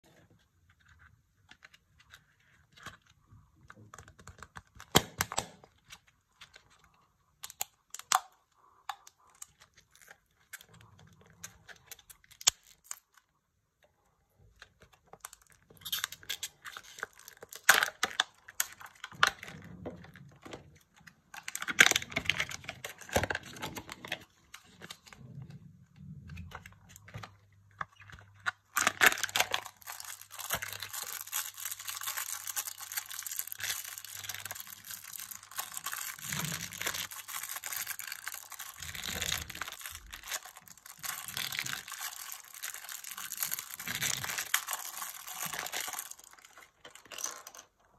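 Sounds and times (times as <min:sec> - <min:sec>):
foil and plastic crinkling: 0:28.8 - 0:47.3.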